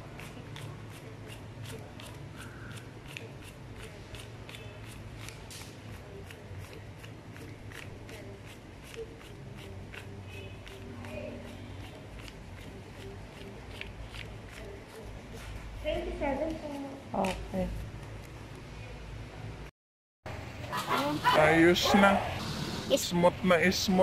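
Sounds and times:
banknotes being counted by hand: 0:00.0 - 0:18.4.

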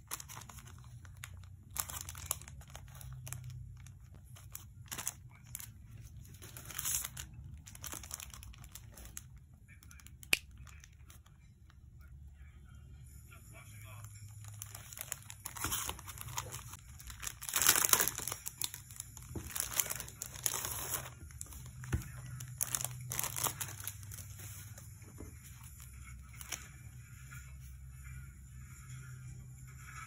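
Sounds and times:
plastic wrapping crinkling: 0:00.0 - 0:11.4, 0:14.1 - 0:26.7.

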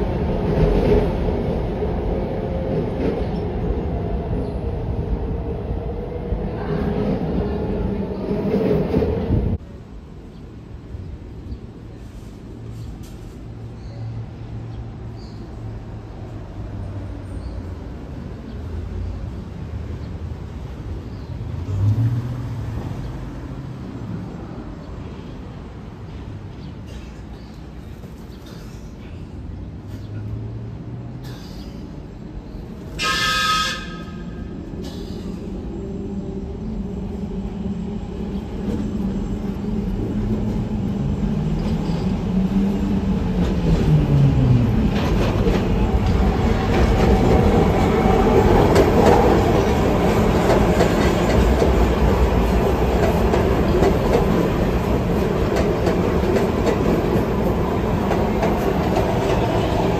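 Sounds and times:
train rumble and wheel clatter: 0:00.0 - 0:59.9
train horn blast: 0:33.0 - 0:34.5.

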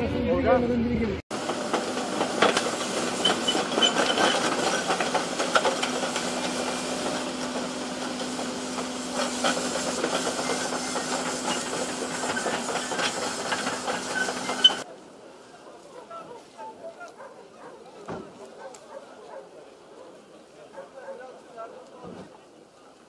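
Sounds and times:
excavator engine hum: 0:00.0 - 0:17.8
metal clanks and knocks: 0:01.7 - 0:06.6.

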